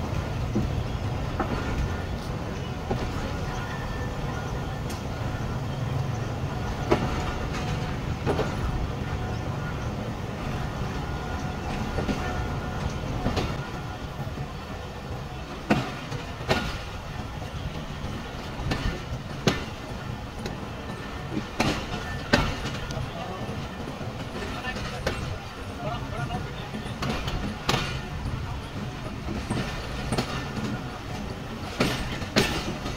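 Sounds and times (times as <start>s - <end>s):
train rumble: 0.0s - 32.9s
sharp knocks and clanks: 31.7s - 32.9s.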